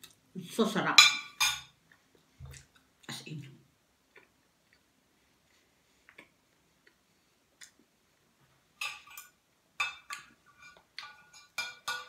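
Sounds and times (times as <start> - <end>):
fork and knife scraping a plate: 10.1 - 12.0.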